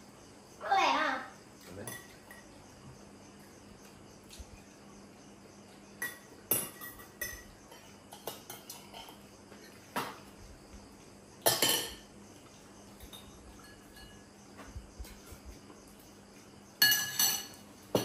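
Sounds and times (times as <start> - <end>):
crickets chirring: 0.0 - 18.0
cutlery and dishes clinking: 1.8 - 2.5, 6.0 - 9.2, 11.5 - 12.0, 13.0 - 14.3, 16.8 - 18.0.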